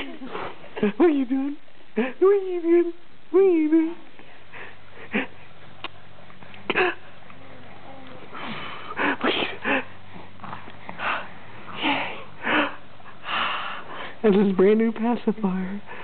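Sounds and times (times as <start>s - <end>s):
breathy huffs and wheezy breaths: 4.2s - 5.7s, 8.3s - 14.2s.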